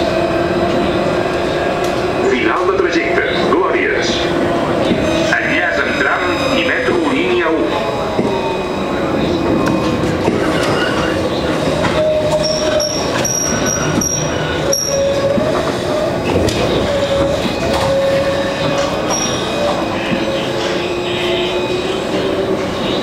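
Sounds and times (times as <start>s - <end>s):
tram motor and rolling noise: 0.0s - 23.0s.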